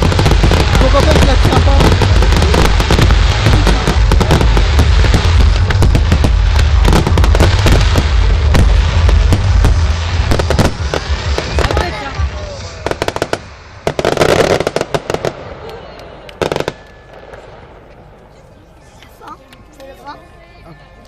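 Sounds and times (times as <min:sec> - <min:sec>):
deep rumble: 0:00.0 - 0:14.1
fireworks bangs and crackle: 0:00.0 - 0:20.0.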